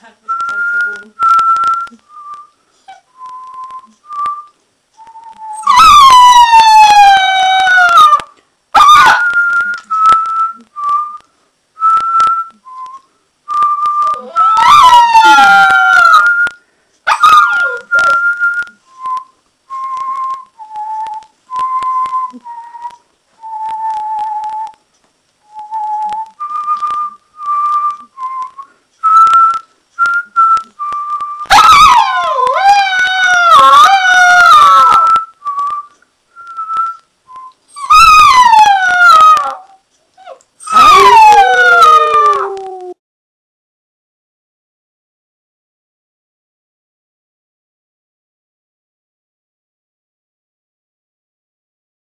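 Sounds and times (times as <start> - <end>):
puppy howling: 5.4 - 9.5, 14.1 - 16.4, 17.1 - 18.2, 31.5 - 35.3, 37.8 - 43.0
person whistling short notes: 9.1 - 14.6, 17.5 - 24.8, 25.5 - 31.5.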